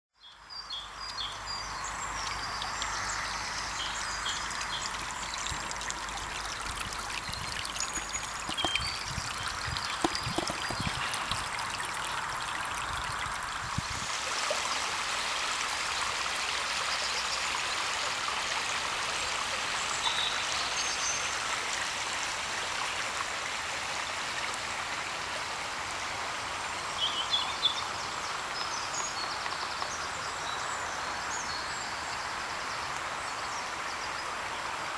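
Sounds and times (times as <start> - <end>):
shallow river babbling: 1.3 - 27.2.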